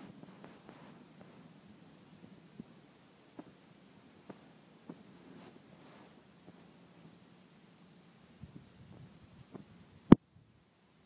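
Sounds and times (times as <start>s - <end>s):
faint rustle: 0.0s - 7.4s
soft footsteps on grass: 4.3s - 6.7s.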